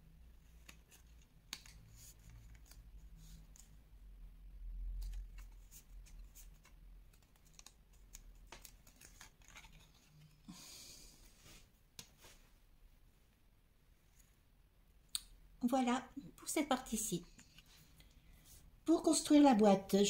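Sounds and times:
paper rustle: 5.0 - 10.5.

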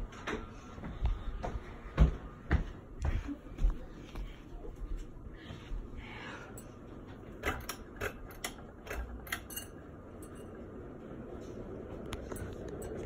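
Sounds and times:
pull chain clicks and rattles: 7.4 - 10.4.

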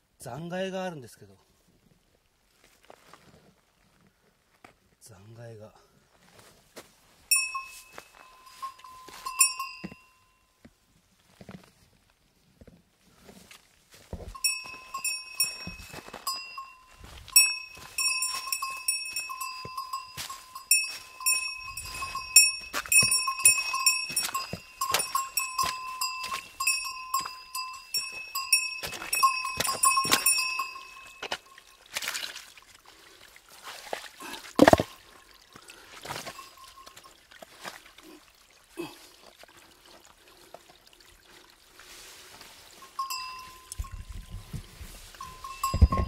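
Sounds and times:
creek water trickling: 6.8 - 46.0
small metal bell jingling: 7.3 - 10.5, 14.4 - 31.8, 36.3 - 37.1, 42.8 - 46.0
stones clicking and knocking: 34.5 - 35.0.

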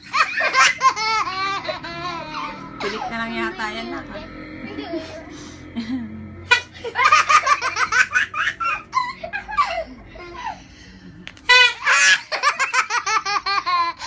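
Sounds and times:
toddler laughing: 0.0 - 10.7.

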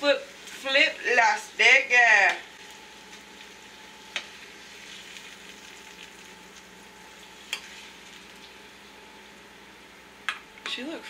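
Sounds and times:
steak sizzling in frying pan: 0.0 - 9.6.

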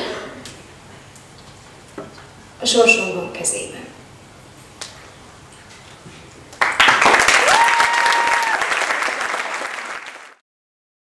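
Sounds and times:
audience applauding: 6.6 - 10.4.

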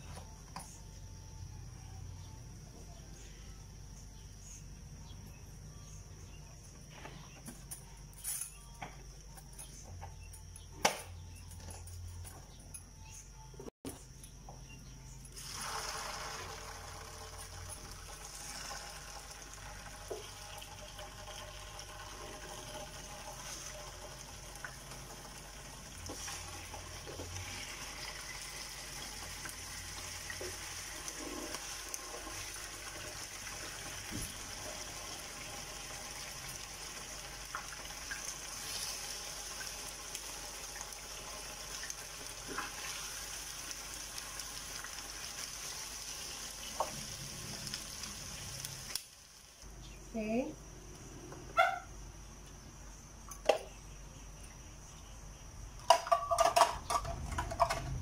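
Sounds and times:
meat sizzling in oil: 15.3 - 49.6.

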